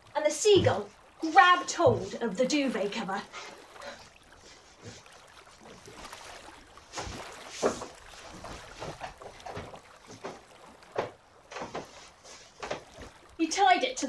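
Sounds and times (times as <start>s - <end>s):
footsteps on wooden stairs: 0.5s - 2.3s, 7.0s - 13.2s.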